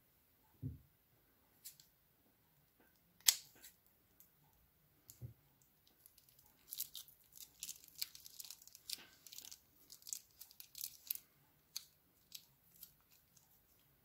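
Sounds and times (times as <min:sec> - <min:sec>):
soft low thump: 0:00.6 - 0:00.9
plastic bag crinkling: 0:06.0 - 0:13.8.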